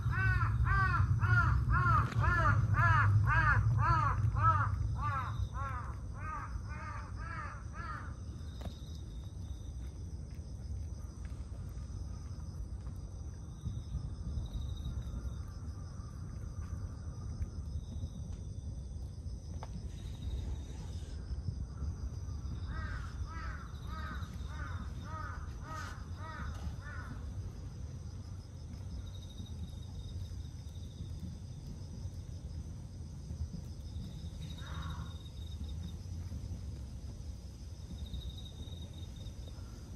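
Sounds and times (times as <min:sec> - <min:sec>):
crow cawing: 0:00.0 - 0:08.2, 0:22.6 - 0:27.2, 0:34.6 - 0:35.2
steady low rumble: 0:00.0 - 0:39.9.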